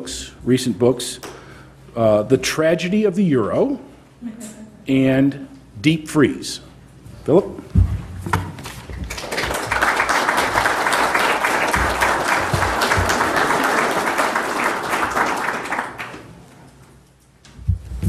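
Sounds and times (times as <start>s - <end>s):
audience applauding: 8.9s - 16.5s.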